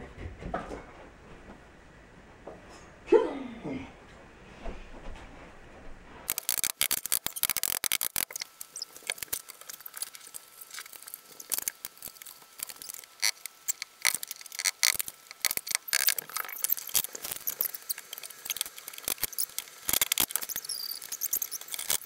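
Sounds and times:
rapid clicks taps and squeaks: 0:06.3 - 0:22.0.

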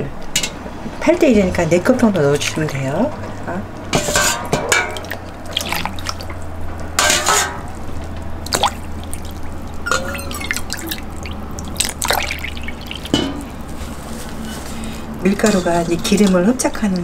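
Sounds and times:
water pouring and splashing: 0:04.2 - 0:17.0.

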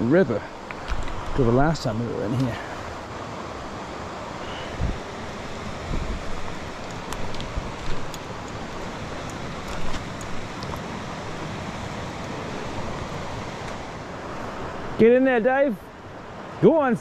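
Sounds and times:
river rushing over rocks: 0:00.0 - 0:17.0
wind bumps on microphone: 0:04.7 - 0:05.0, 0:05.8 - 0:08.1.

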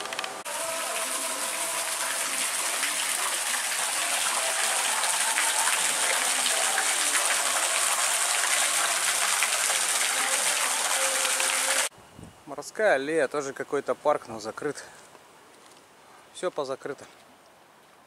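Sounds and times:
fountain water splashing into basin: 0:00.4 - 0:11.9.

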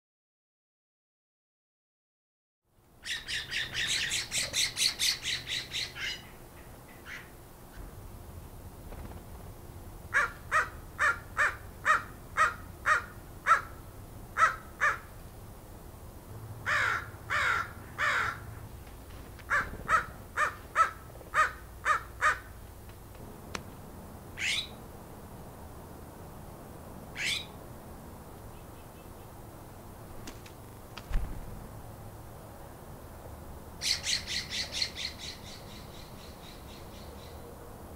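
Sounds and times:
crow calling: 0:03.0 - 0:07.4, 0:10.1 - 0:15.2, 0:16.6 - 0:18.7, 0:19.4 - 0:22.6, 0:24.4 - 0:24.8, 0:27.2 - 0:27.6, 0:33.8 - 0:36.6.

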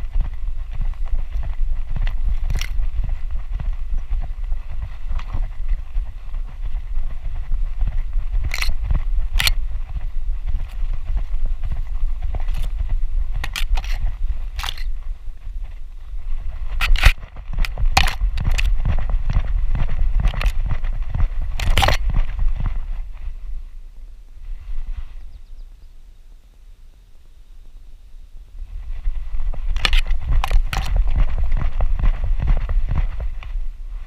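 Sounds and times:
grass brushing against camera: 0:00.0 - 0:23.7, 0:24.3 - 0:25.5, 0:28.6 - 0:34.0
wind rumble: 0:00.0 - 0:34.0.

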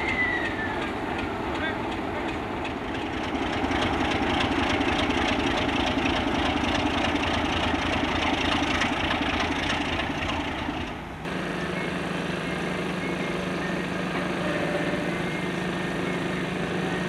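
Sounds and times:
diesel locomotive engine running: 0:00.0 - 0:17.0.

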